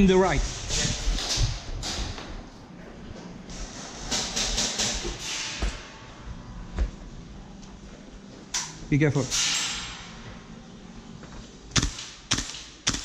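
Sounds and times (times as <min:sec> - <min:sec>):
footsteps: 0:04.9 - 0:08.5.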